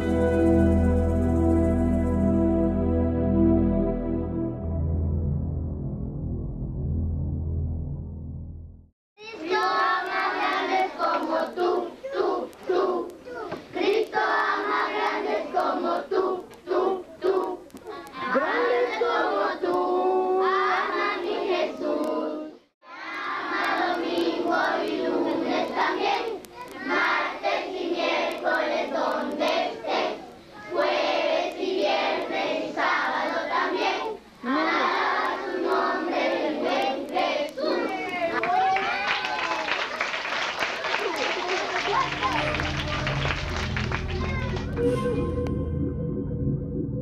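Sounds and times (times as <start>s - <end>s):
children singing and shouting: 9.2s - 38.4s, 44.0s - 45.0s.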